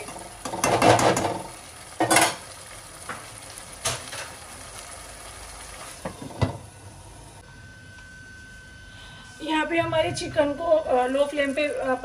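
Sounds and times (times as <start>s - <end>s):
food simmering with soft sizzle: 0.0s - 8.8s.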